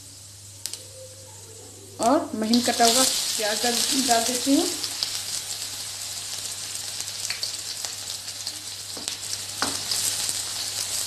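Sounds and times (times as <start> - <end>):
onion sizzling in hot oil: 2.0 - 11.0.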